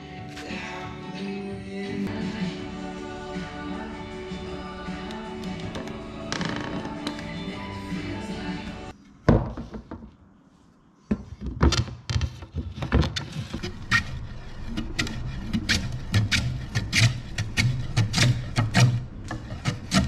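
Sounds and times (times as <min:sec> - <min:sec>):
wooden knock: 0:09.3 - 0:10.1
block rubbing wood: 0:12.4 - 0:20.0.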